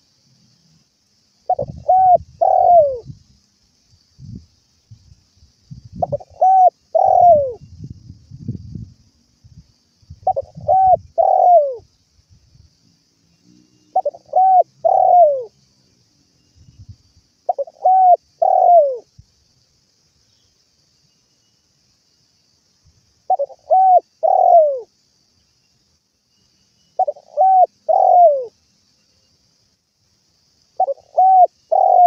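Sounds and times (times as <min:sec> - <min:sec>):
dove cooing: 0:01.5 - 0:03.1, 0:06.0 - 0:07.6, 0:10.2 - 0:11.8, 0:13.9 - 0:15.5, 0:17.5 - 0:19.1, 0:23.3 - 0:24.9, 0:27.0 - 0:28.5, 0:30.8 - 0:32.0.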